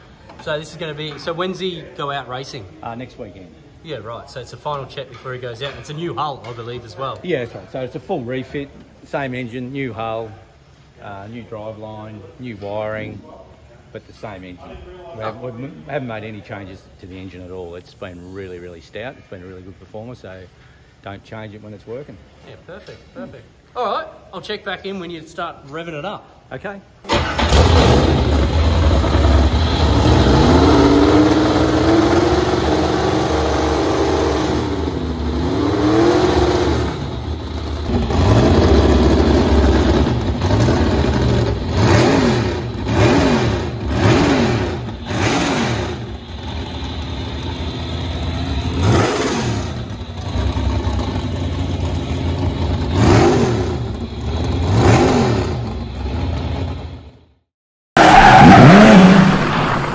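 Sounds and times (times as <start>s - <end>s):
boat engine revving: 27.1s - 37.2s, 37.8s - 46.4s, 48.0s - 50.8s, 58.0s - 59.9s.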